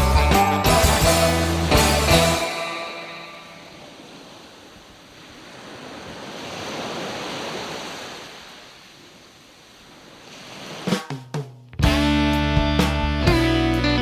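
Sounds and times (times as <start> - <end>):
surf-like wash of noise: 1.4 - 11.1.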